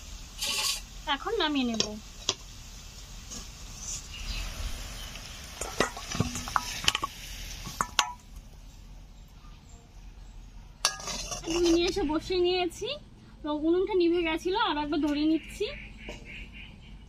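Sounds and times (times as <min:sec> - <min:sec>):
chicken sizzling in a pan: 0:00.0 - 0:08.6
metal spatula scraping a pan: 0:00.4 - 0:00.9, 0:10.8 - 0:12.2.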